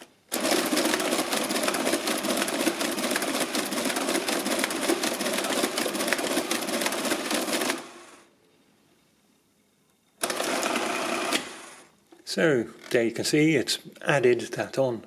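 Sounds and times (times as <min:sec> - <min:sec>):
mechanical calculator clattering: 0:00.3 - 0:08.0.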